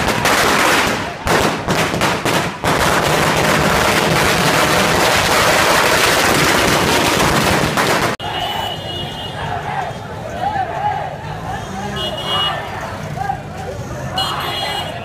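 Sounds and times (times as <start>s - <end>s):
firecrackers bursting: 0.0s - 8.2s.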